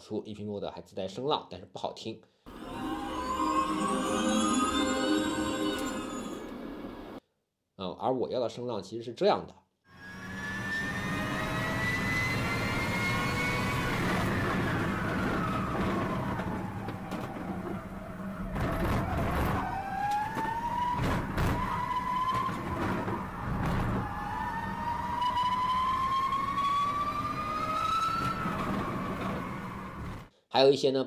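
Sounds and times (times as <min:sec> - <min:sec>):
car motor whining: 0:10.0 - 0:30.3.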